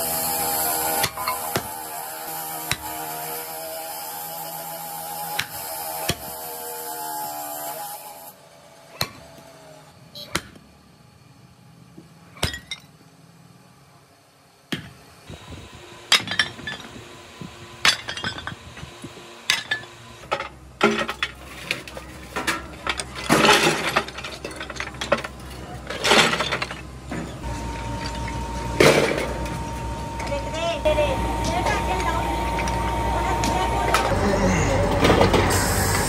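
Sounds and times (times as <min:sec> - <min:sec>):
sledgehammer striking cast iron: 0:00.8 - 0:01.9, 0:02.6 - 0:03.1
scrap metal clanking into hopper: 0:19.5 - 0:27.4.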